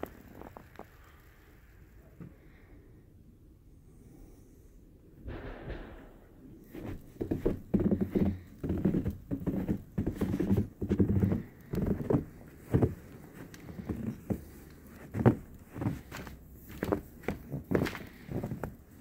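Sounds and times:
footsteps in snow: 0:06.7 - 0:19.0.

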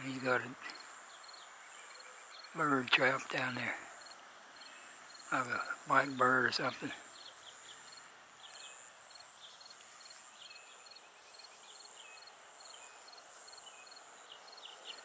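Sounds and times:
background hiss: 0:00.0 - 0:15.0
insect high chirp: 0:00.6 - 0:03.2, 0:03.9 - 0:15.0
insect buzz: 0:00.7 - 0:02.6, 0:07.0 - 0:15.0.

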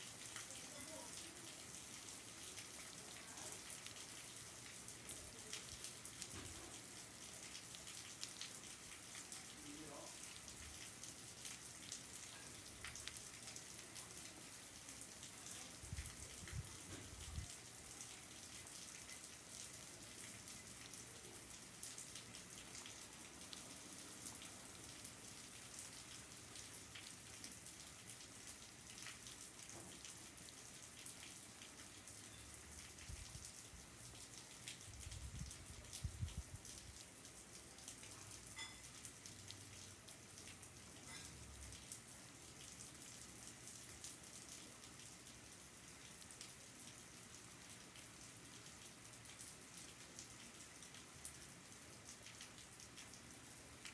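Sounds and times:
steady rain falling: 0:00.0 - 0:53.9
water drips ticking: 0:16.2 - 0:53.9.

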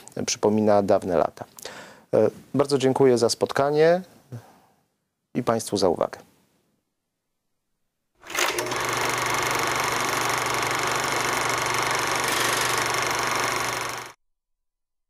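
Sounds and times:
film projector whirring: 0:08.2 - 0:14.2.

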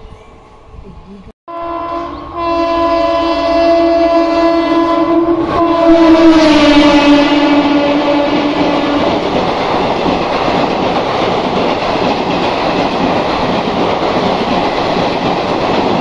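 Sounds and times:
rush of passing train coaches: 0:00.0 - 0:16.0
train horn blast: 0:01.5 - 0:09.2.

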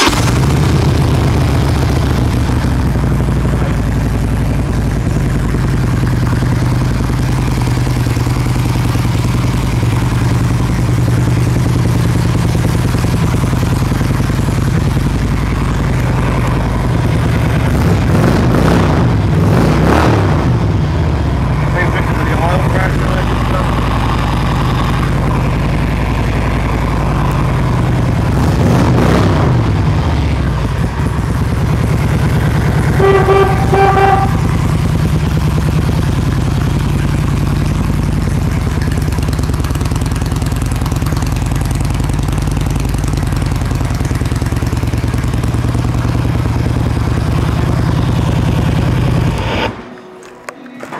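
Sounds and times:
motorcycle engine idling: 0:00.0 - 0:19.4, 0:20.4 - 0:49.4
motorcycle horn toot: 0:32.8 - 0:34.8.

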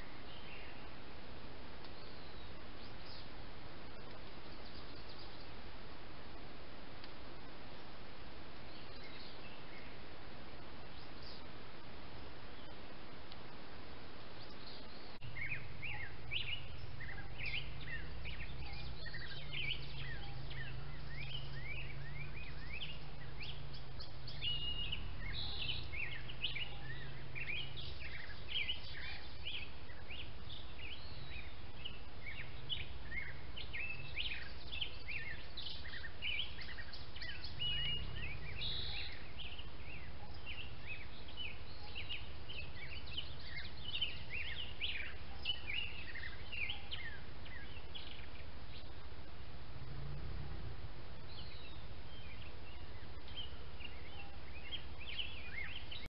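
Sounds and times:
birds chirping and singing: 0:00.0 - 0:01.0, 0:01.8 - 0:05.8, 0:08.6 - 0:10.2, 0:10.8 - 0:11.6, 0:14.2 - 0:56.0
steady low rumble: 0:15.2 - 0:41.2, 0:48.0 - 0:54.0.

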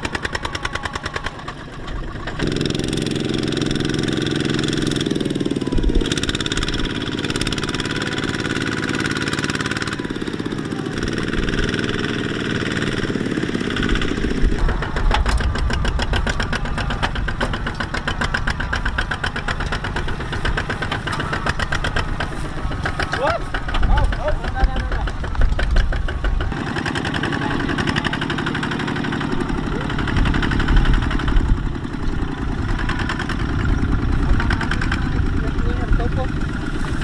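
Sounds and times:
diesel engine chugging: 0:00.0 - 0:37.0.

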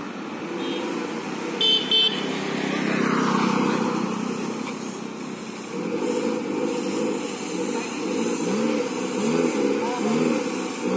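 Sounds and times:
car engine running: 0:00.0 - 0:10.9
car horn toots: 0:01.6 - 0:02.3.

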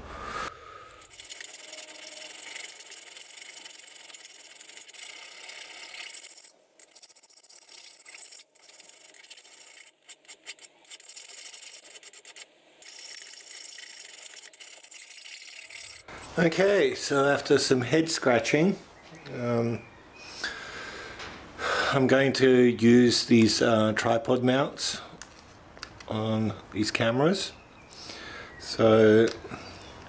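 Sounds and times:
file rasping on metal: 0:01.1 - 0:13.6.

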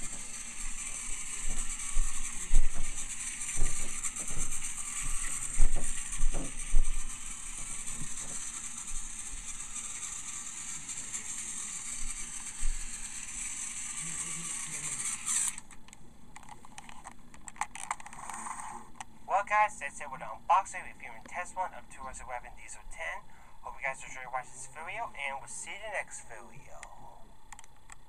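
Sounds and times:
toy train clicks: 0:00.0 - 0:15.7
toy train motor whirring: 0:00.0 - 0:15.8, 0:16.4 - 0:19.0, 0:20.6 - 0:26.9.

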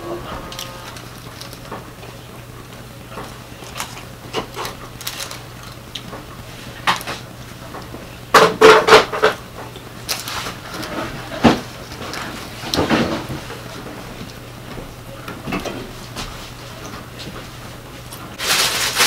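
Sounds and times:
paper rustling and clicks: 0:00.5 - 0:01.8, 0:03.6 - 0:06.2, 0:10.1 - 0:13.2, 0:18.4 - 0:19.0.

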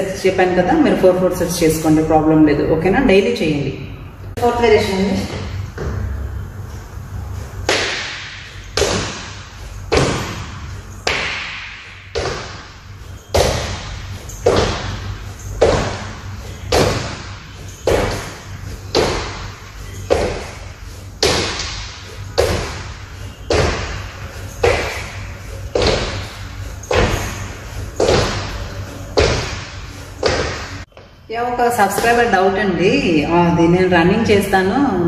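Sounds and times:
feet thudding on wooden floor: 0:07.7 - 0:31.0.

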